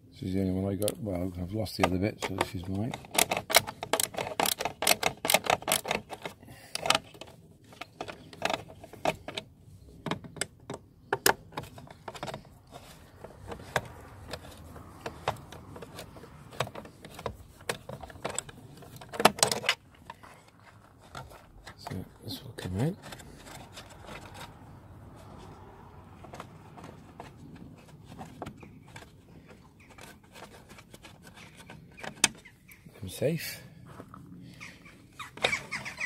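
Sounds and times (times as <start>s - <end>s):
screwdriver clicking and rattling: 2.2s - 9.4s, 10.0s - 21.5s, 23.0s - 24.6s.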